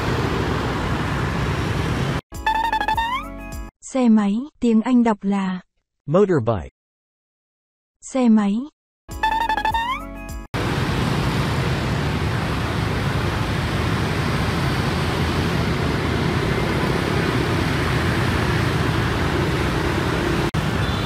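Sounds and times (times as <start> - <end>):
motor scooters riding past: 10.6 - 21.0.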